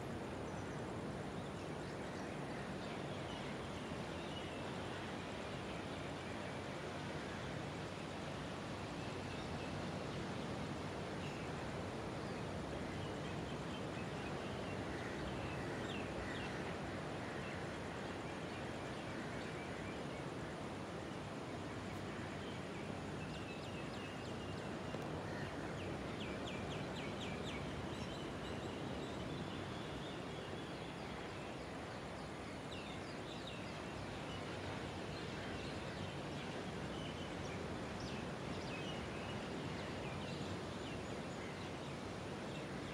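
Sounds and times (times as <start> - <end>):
steady background hiss: 0.0 - 42.9.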